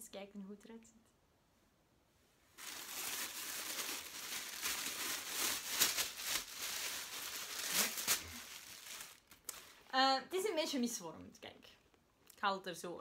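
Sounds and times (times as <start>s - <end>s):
plastic bag crinkling: 2.6s - 9.8s.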